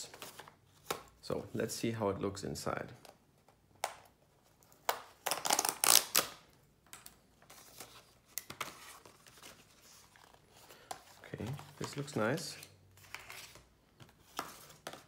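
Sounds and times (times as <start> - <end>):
cardboard tear strip ripping: 4.9 - 6.4.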